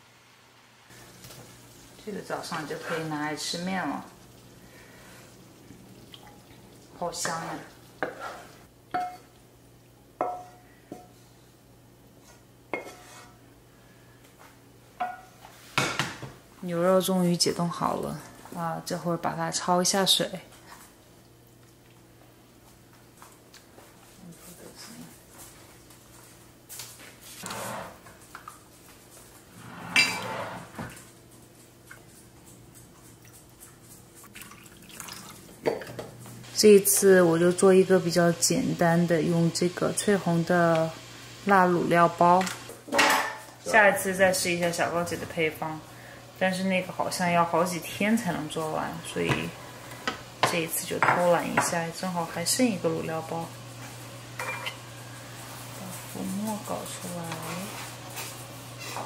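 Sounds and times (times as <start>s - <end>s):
faint steady hum: 0.0s - 57.4s
water dripping in pot: 6.0s - 8.0s, 34.2s - 35.4s.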